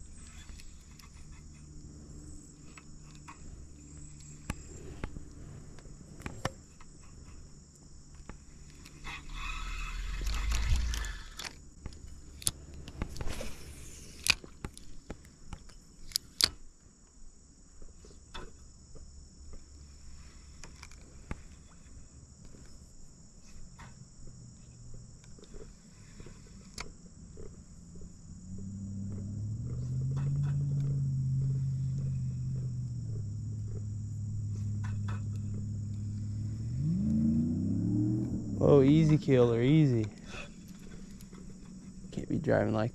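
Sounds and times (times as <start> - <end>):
vehicle engine hum: 0.0 - 15.2, 23.4 - 42.9
insects droning: 0.0 - 42.9.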